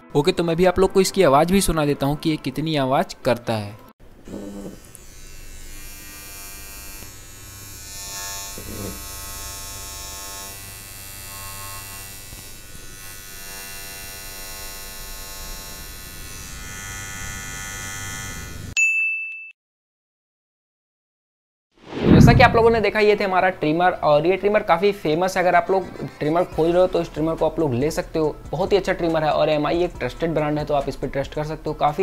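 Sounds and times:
beard trimmer buzzing: 0:04.2 - 0:18.8.

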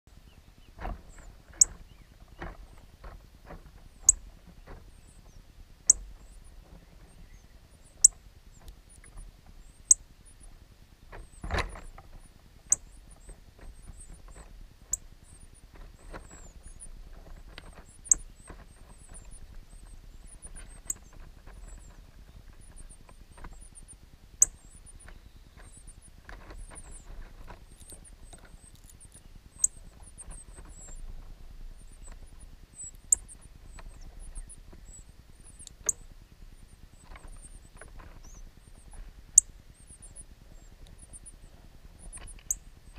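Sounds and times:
nestlings peeping: 0:00.1 - 0:42.9.

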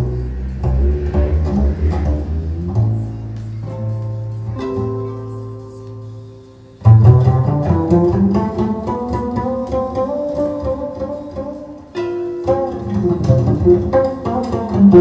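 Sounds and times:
string music over loudspeakers: 0:00.0 - 0:15.0.

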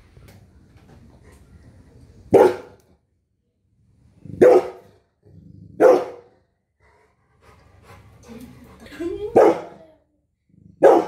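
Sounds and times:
dog barking: 0:02.3 - 0:02.8, 0:04.4 - 0:04.9, 0:05.8 - 0:06.3, 0:09.4 - 0:09.7, 0:10.8 - 0:11.0.

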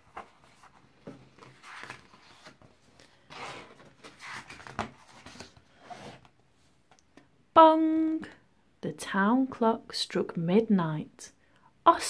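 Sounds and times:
book pages turning: 0:00.0 - 0:06.3.

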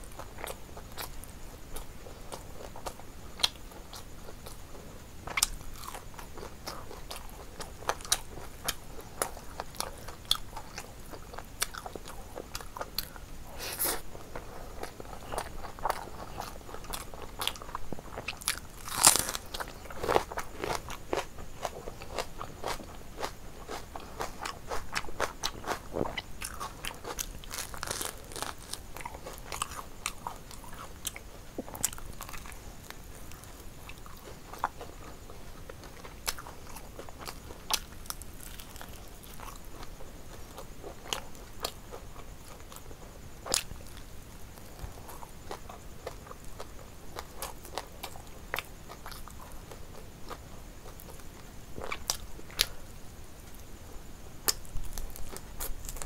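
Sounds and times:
crunchy crackling bites: 0:05.2 - 0:52.8, 0:54.4 - 0:56.0
wet chewing: 0:05.3 - 0:42.9.

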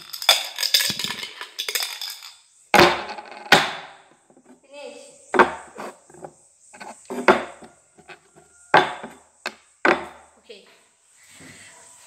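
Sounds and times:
cups knocking on wooden table: 0:05.4 - 0:10.2.

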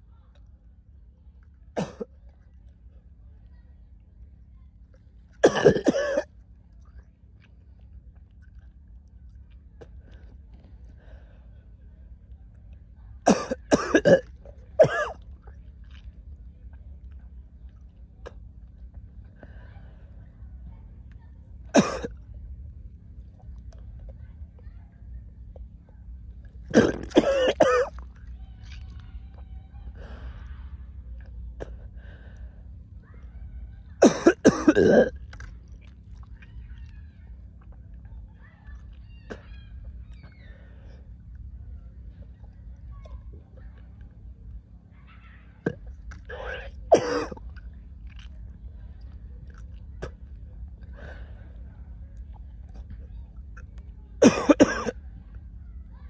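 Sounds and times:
person retching: 0:05.4 - 0:06.3, 0:21.8 - 0:22.1, 0:26.7 - 0:28.0, 0:34.0 - 0:35.5, 0:45.6 - 0:48.2.

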